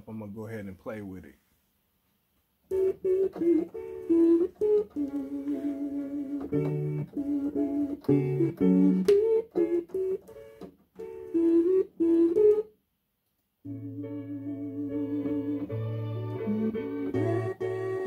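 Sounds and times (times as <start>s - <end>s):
chopped vinyl chord snippets: 2.7s - 12.6s, 13.6s - 18.0s
held chord with low bass: 13.7s - 18.0s.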